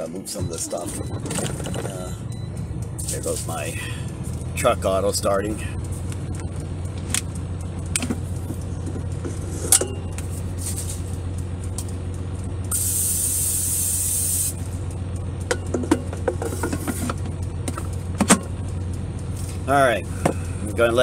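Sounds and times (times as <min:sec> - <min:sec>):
truck engine idling: 0:00.0 - 0:21.0
oil spray hissing: 0:12.7 - 0:14.6.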